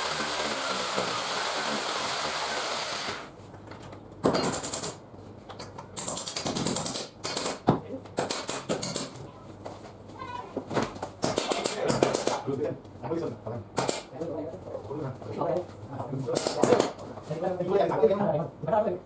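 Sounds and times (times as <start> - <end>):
electric drill boring into wall: 0.0 - 3.3.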